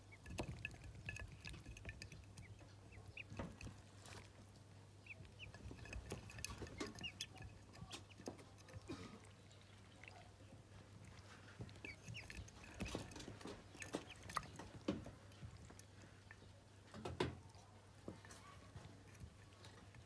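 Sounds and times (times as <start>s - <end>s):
ducklings peeping: 0.0s - 8.6s, 9.2s - 16.7s
ducklings pecking taps: 0.0s - 20.0s.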